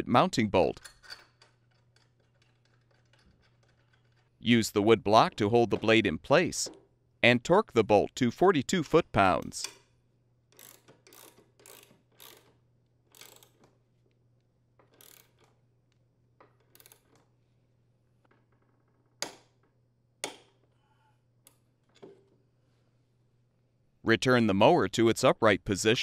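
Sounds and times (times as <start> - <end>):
sharp wrench clicks: 10.5 - 13.6, 14.9 - 15.6, 16.6 - 17.1
torque wrench ratcheting: 10.5 - 13.7, 14.8 - 15.6, 16.6 - 17.1.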